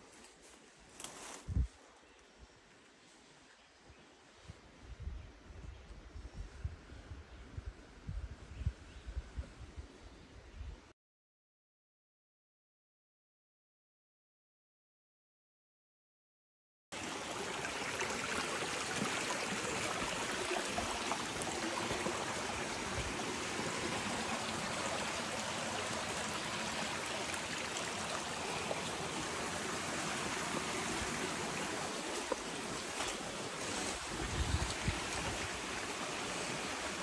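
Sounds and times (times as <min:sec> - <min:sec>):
creek running over stones: 0:17.0 - 0:37.0.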